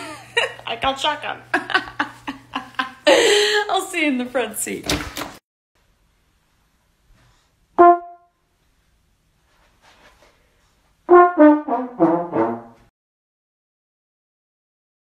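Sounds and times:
descending trombone notes: 7.8s - 8.3s, 11.1s - 12.9s
trombone blast: 7.8s - 8.3s, 11.1s - 12.9s.

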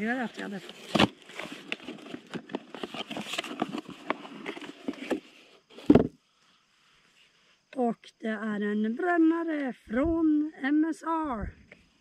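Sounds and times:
cardboard rustling and crackling: 0.0s - 6.2s.

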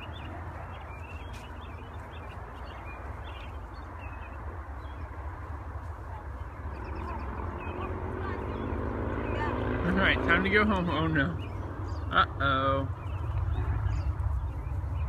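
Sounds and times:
faint distant animal chirps: 0.0s - 9.8s
wind rumble on microphone: 0.0s - 15.0s.

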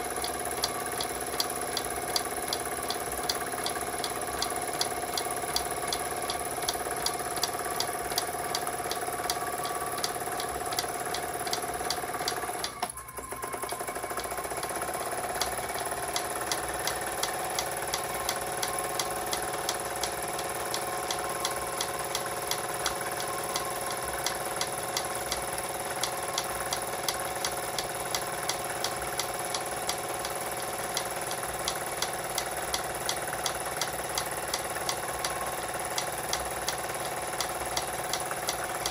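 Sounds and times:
quick regular ticking: 0.0s - 12.8s, 13.5s - 38.9s
machinery whine: 0.0s - 38.9s
toy steam engine running: 0.0s - 38.9s.

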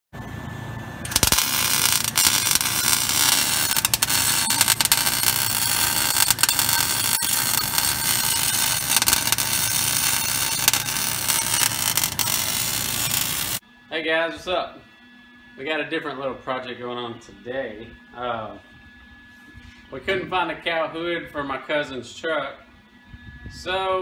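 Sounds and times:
arc welding crackle: 1.0s - 13.6s
welding pops: 1.1s - 13.6s.

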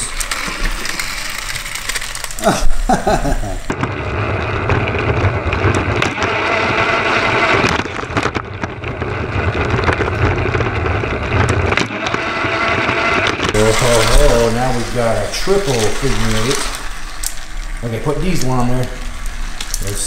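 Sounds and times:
toy train motor running: 0.0s - 3.8s, 11.4s - 20.0s.

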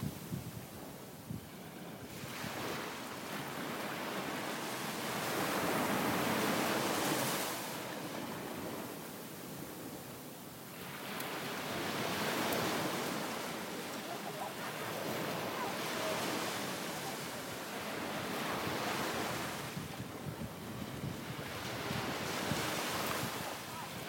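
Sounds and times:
wind on microphone: 0.0s - 2.9s, 14.8s - 24.0s
ocean surf washing ashore: 0.0s - 24.0s.

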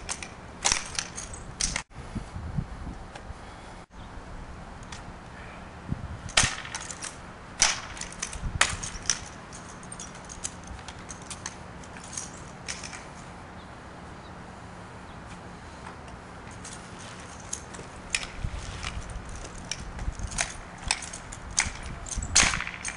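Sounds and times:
rifle smacks and clatters: 0.1s - 1.9s, 6.3s - 9.4s, 17.3s - 22.9s.

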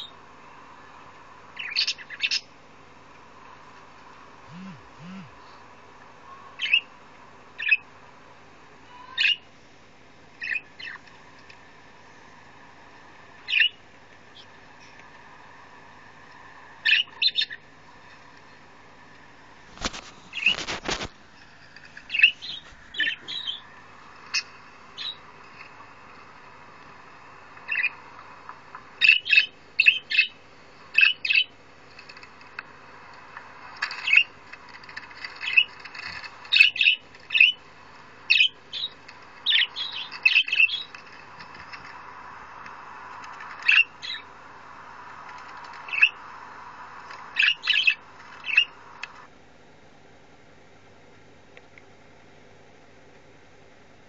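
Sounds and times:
budgerigar chirping: 1.6s - 2.5s, 7.6s - 7.8s, 16.8s - 17.6s, 22.1s - 23.6s, 27.7s - 28.0s, 29.0s - 31.5s, 38.3s - 38.9s, 47.4s - 48.8s.

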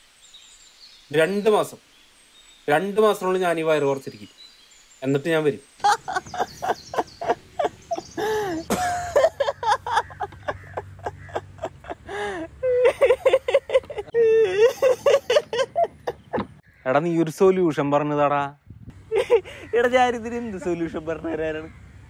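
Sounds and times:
man laughing hard: 5.8s - 16.6s, 19.1s - 21.7s.

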